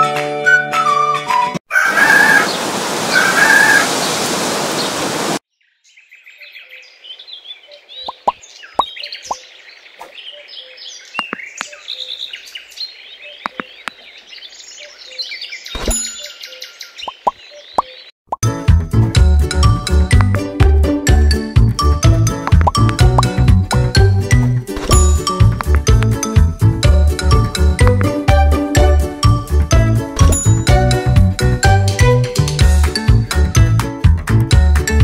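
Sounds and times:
small birds chirping: 4.0 - 18.2
water drops plopping: 22.4 - 23.3.

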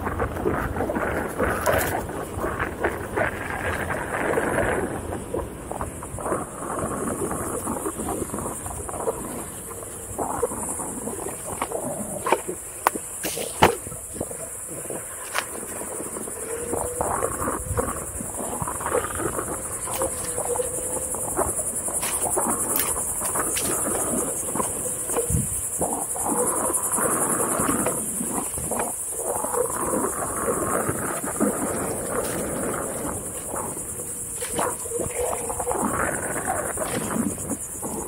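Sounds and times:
high-pitched insect buzz: 0.0 - 38.0.

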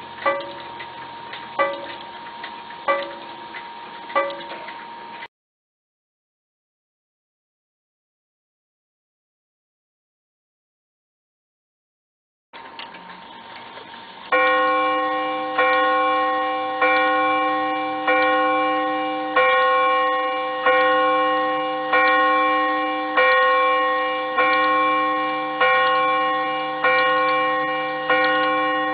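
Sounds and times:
clock chime rod ringing: 0.0 - 2.1, 2.8 - 3.4, 4.1 - 5.0, 14.3 - 28.9.

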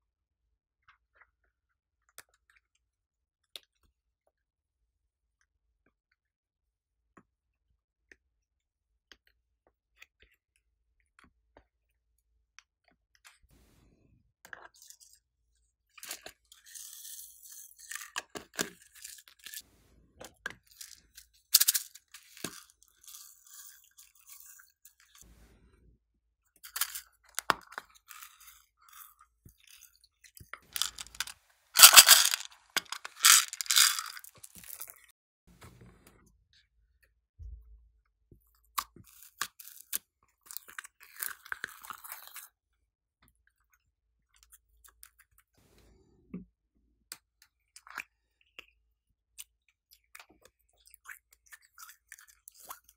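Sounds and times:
plastic beads rattling in glass tray: 20.8 - 22.5, 30.8 - 34.9.

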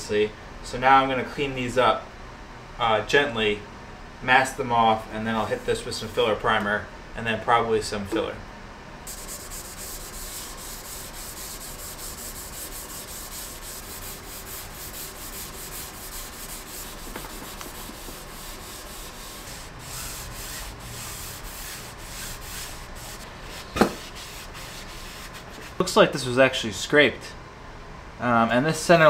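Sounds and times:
abrasive pad scrubbing metal: 9.1 - 25.8.

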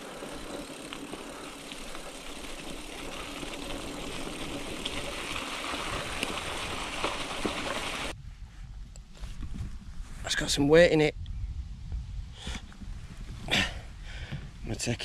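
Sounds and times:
bicycle tyres rolling over leaves: 0.0 - 8.2.

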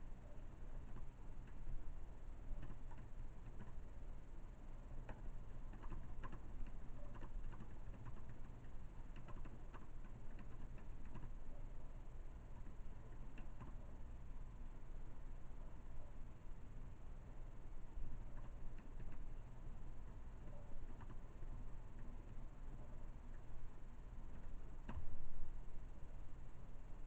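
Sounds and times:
computer keyboard typing: 2.6 - 3.8, 5.0 - 11.4, 13.3 - 13.8, 18.3 - 19.3, 20.4 - 21.4.

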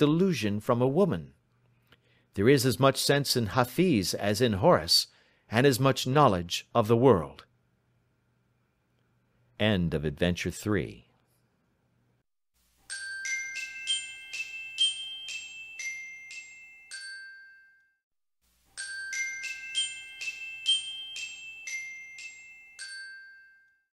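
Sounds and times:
bell-like jingle melody: 12.8 - 18.0, 18.7 - 23.9.

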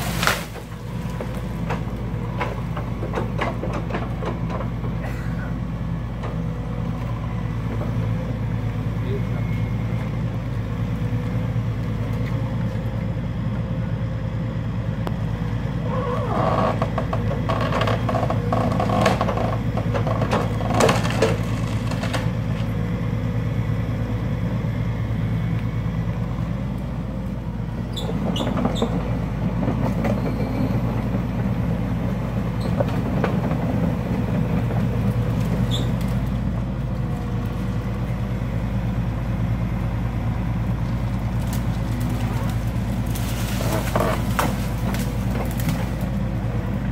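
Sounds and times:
trees cracking as sheared: 0.0 - 4.5, 15.8 - 22.8, 28.0 - 46.9
excavator diesel engine running: 0.0 - 46.9.

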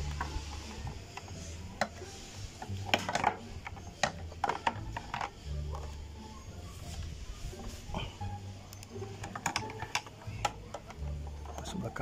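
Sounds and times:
plastic clicks and knocks: 2.8 - 5.4, 9.2 - 11.6.

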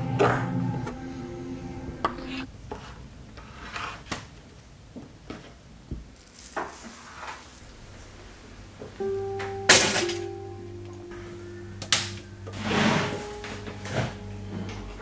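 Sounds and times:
background music: 0.0 - 2.5, 8.7 - 15.0.

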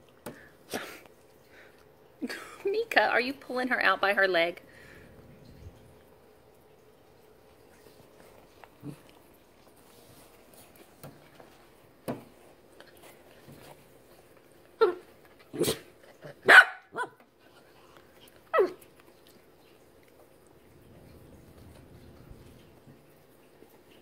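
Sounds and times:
dog barking: 16.4 - 17.2.

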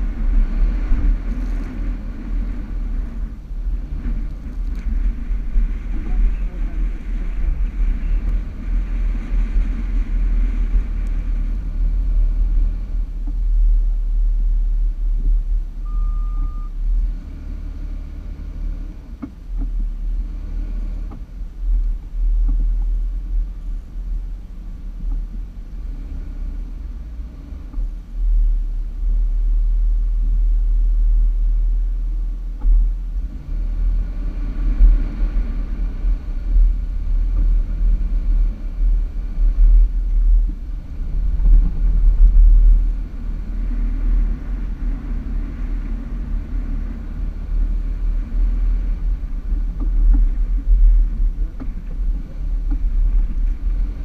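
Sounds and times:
vehicle engine rumbling: 0.0 - 54.0
short beep: 15.8 - 16.8.

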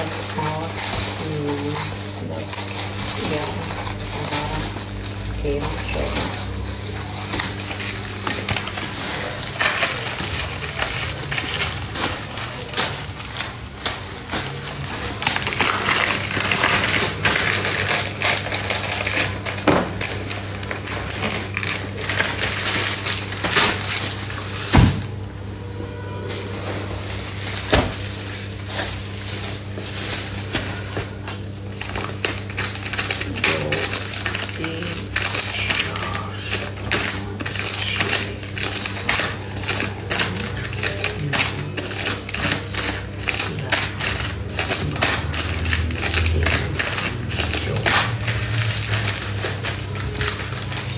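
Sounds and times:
plastic packaging rustling: 0.0 - 50.9
steady low hum: 0.0 - 50.9.

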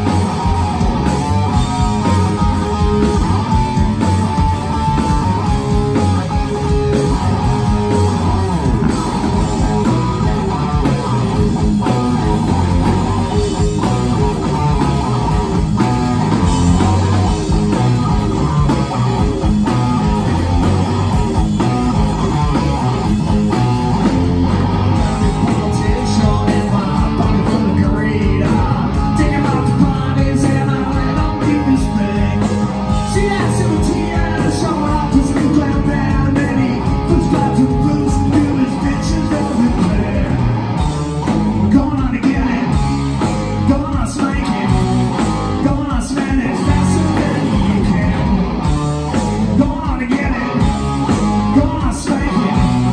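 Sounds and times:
bass guitar: 0.0 - 52.9
drums: 0.0 - 52.9
electric guitar: 0.0 - 52.9.

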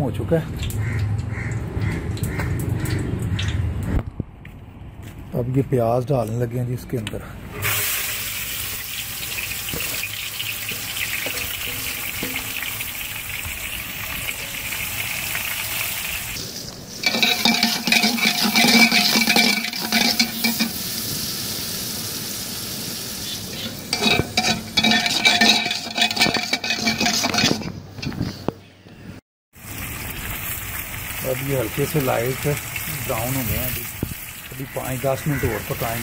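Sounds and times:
onions sizzling: 7.5 - 28.4, 29.6 - 36.0
ladle scraping metal pot: 9.3 - 20.9, 23.5 - 28.5.

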